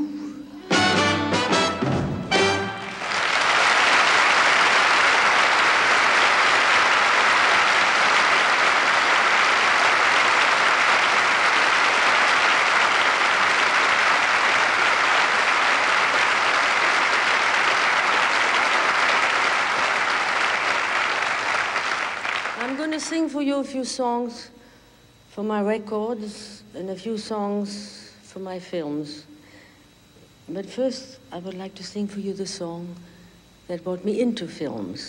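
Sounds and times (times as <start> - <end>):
audience applauding: 2.3 - 23.1.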